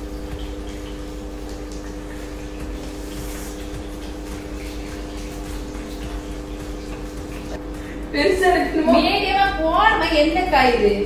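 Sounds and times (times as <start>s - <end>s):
steady hum: 0.0s - 11.0s.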